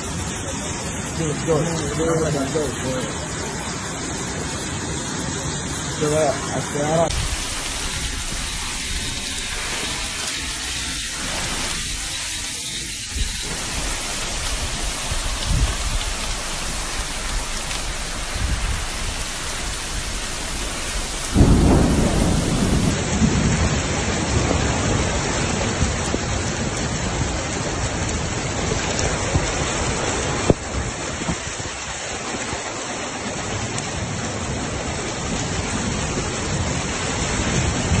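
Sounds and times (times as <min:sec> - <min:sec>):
heavy rain pouring onto water: 0:00.0 - 0:38.0
loud deep rumble: 0:13.2 - 0:29.7.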